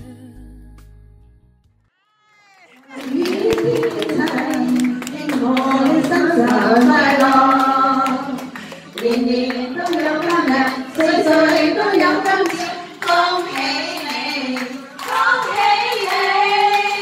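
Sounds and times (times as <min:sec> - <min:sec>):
person singing slow song: 0:00.0 - 0:01.1
people clapping in rhythm: 0:02.6 - 0:17.0.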